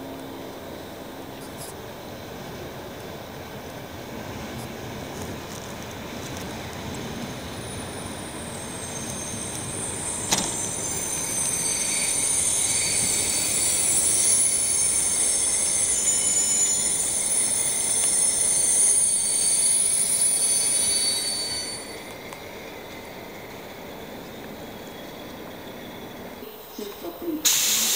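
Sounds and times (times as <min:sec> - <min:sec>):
train wheels squealing: 0:07.1 - 0:27.9.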